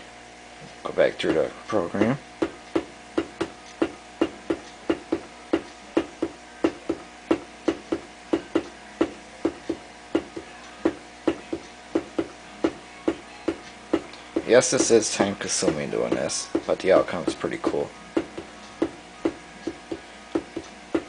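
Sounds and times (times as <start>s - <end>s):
faint hum: 0.0s - 21.0s
steady tapping: 1.2s - 21.0s.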